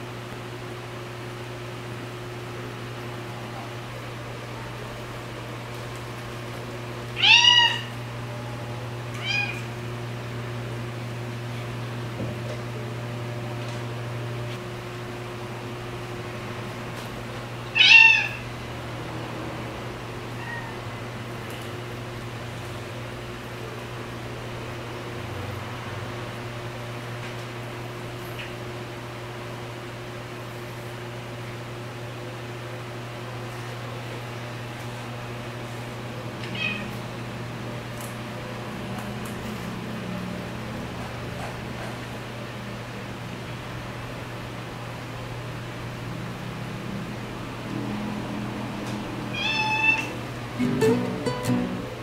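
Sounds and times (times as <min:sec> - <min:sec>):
cat meowing: 0:07.2 - 0:08.0, 0:09.1 - 0:09.7, 0:17.7 - 0:18.4, 0:20.4 - 0:20.9, 0:36.5 - 0:37.0, 0:49.3 - 0:50.2.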